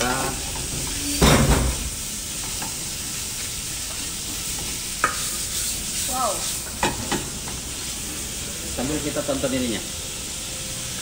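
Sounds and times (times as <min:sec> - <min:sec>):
meat sizzling in a frying pan: 0:00.0 - 0:11.0
spatula scraping a pan: 0:03.4 - 0:07.2.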